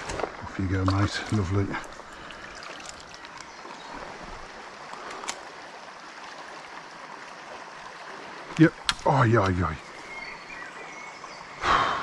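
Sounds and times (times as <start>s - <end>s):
river water running over stones: 0.0s - 12.0s.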